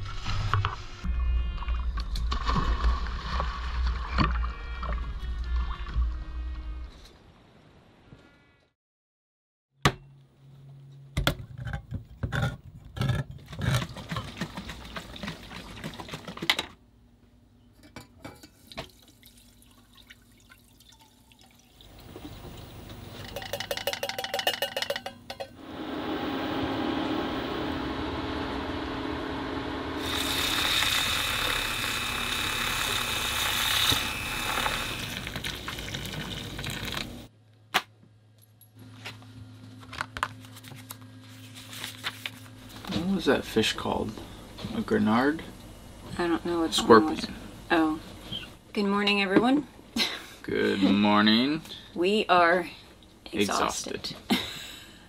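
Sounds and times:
can opener clicking and grinding: 30.0 - 37.2
liquid bubbling in a saucepan: 35.0 - 37.3.

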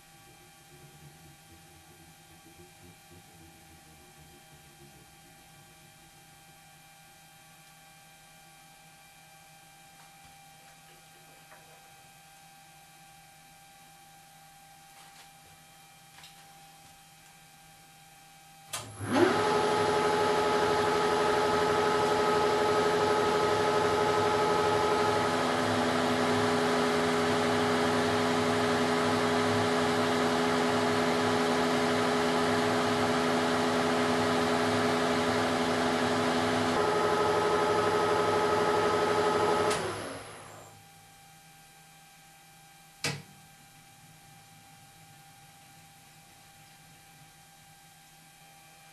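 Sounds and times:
faint hum: 0.0 - 18.9
lathe running: 19.1 - 40.6.

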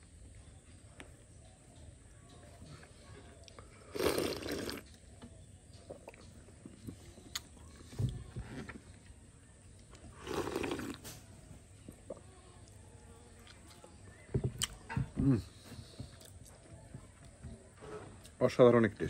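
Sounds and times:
person slurping wet: 3.9 - 4.9, 10.2 - 11.0.

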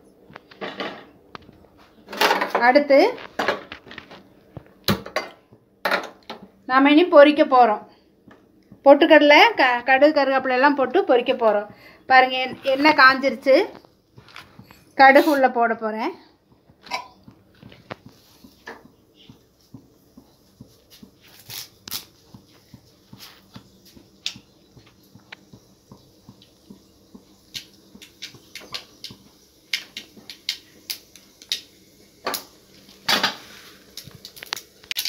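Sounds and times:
seeds popping in hot oil: 8.3 - 35.0.

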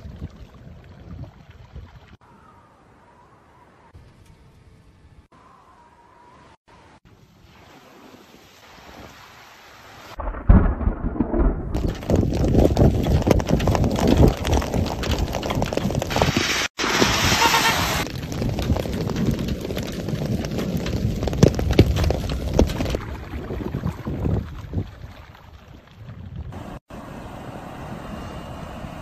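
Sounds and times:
wind buffeting microphone: 10.2 - 17.3, 18.0 - 26.8
rain and hail pelting: 10.2 - 26.2.

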